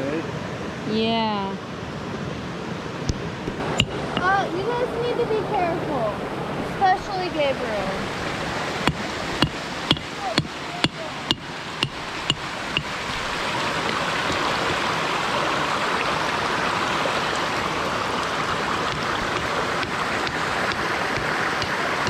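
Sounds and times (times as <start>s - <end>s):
creek water rushing over rocks: 1.9s - 22.0s
sharp taps: 8.8s - 13.0s, 18.9s - 22.0s.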